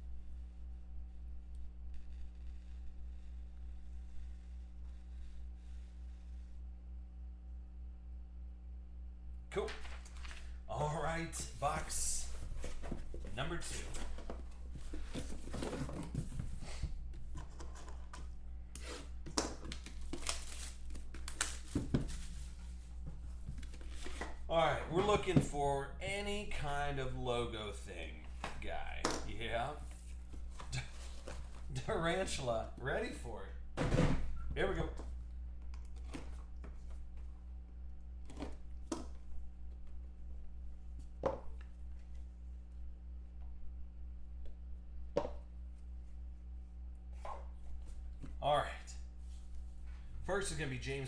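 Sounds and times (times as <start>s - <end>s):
electrical hum: 0.0s - 51.0s
cardboard rustling and scraping: 9.6s - 18.2s, 19.8s - 24.4s
cardboard knocks and scrapes: 12.3s - 18.2s.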